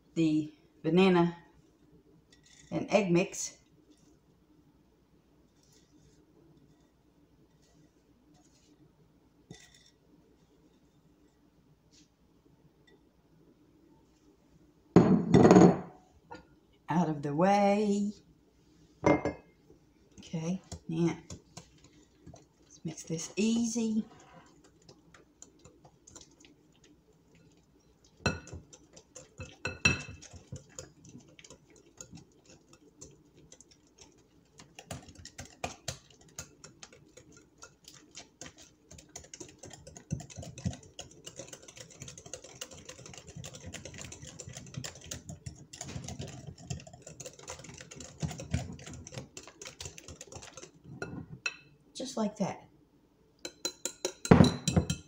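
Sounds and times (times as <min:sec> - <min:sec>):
whisk clicking against glass bowl: 0:20.6 - 0:50.8, 0:53.4 - 0:55.0.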